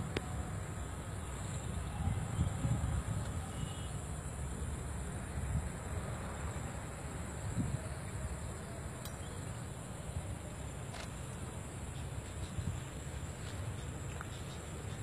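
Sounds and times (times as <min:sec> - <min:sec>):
insect chirring: 0:05.8 - 0:15.0.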